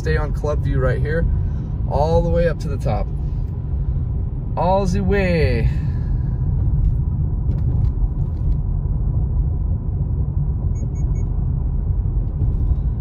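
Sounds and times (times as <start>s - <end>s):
car road noise rumble: 0.0s - 13.0s.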